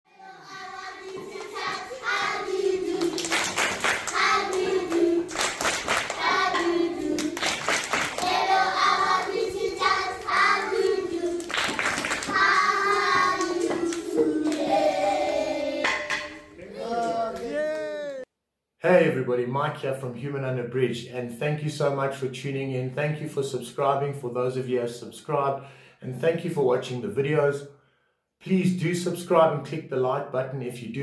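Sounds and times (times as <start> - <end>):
children singing: 0.1 - 18.2
hands clapping: 1.0 - 2.2, 2.8 - 8.9, 9.8 - 14.8, 16.8 - 18.2.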